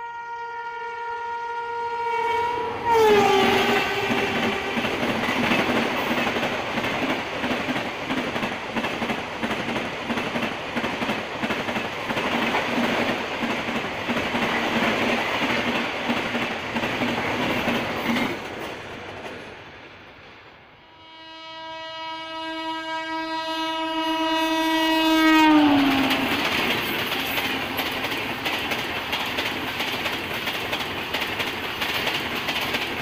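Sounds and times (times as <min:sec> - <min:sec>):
train coaches rolling roar: 0:01.6 - 0:21.4, 0:23.2 - 0:33.0.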